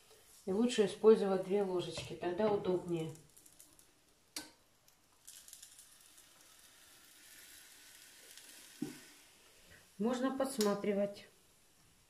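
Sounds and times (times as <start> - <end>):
batter sizzling in waffle iron: 4.9 - 10.6.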